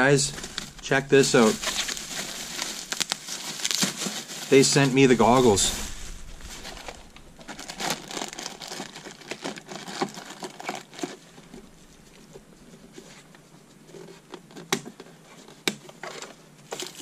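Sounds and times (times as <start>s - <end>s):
plastic film crinkling: 0.0s - 12.4s.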